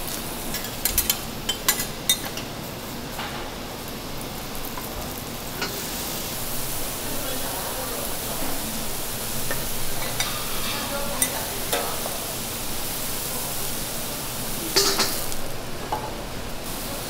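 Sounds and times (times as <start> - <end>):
mushrooms sizzling on griddle: 0.0 - 17.0
water hissing into steam: 5.2 - 17.0.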